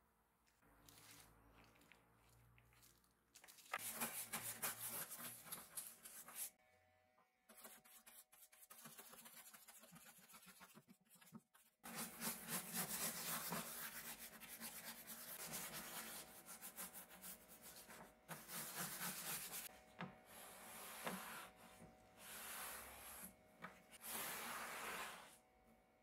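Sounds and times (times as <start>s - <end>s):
paintbrush scrubbing wood: 11.9s - 19.7s.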